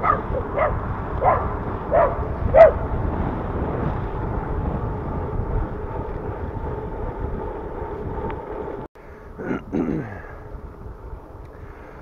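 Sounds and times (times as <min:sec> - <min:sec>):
dog barking: 0:00.0 - 0:02.8
wind rush on microphone: 0:00.0 - 0:12.0.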